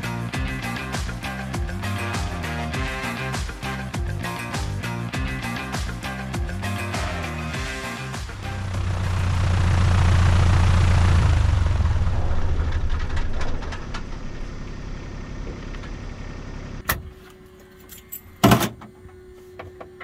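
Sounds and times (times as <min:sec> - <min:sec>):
aircraft engine shutting down: 0:07.6 - 0:17.0.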